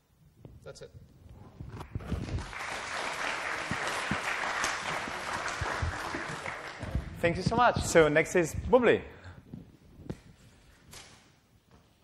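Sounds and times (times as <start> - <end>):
audience applauding: 2.0 - 7.4.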